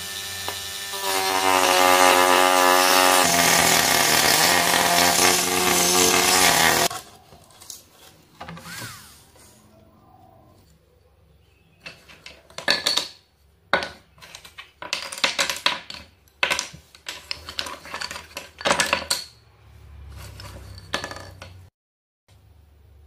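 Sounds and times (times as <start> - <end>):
plywood pieces clattering: 11.8 - 19.4, 20.2 - 21.7.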